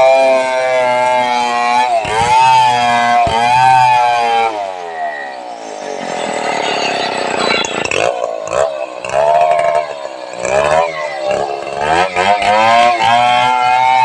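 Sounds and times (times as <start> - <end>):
chainsaw engine revving: 0.0 - 5.4, 7.1 - 14.0.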